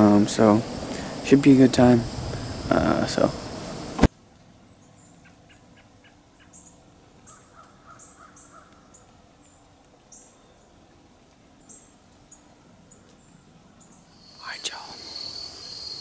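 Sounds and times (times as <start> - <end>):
bird repeated calls: 4.7 - 10.8.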